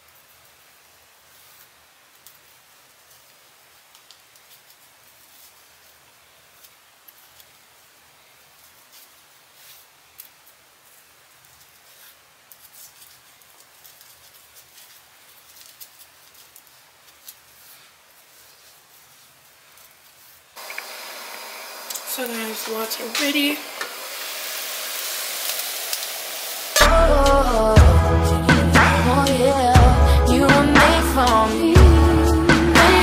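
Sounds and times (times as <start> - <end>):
small ticks and crackles: 0.0 - 23.9
hair rustling: 0.1 - 33.0.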